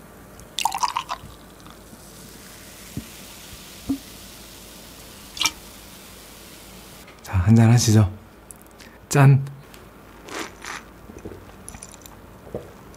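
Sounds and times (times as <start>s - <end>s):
beer pouring into a glass: 0.6s - 4.2s, 5.2s - 5.7s.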